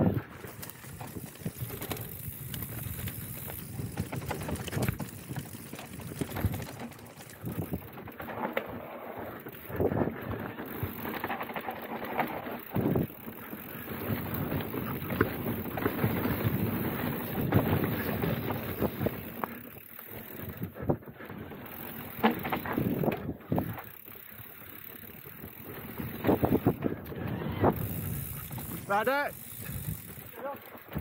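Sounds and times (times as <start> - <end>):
bike knocks and rattles: 0.0 - 27.0, 27.6 - 31.0
bike tyres rolling on dirt: 0.0 - 31.0
wind buffeting microphone: 7.4 - 8.0, 25.6 - 30.3.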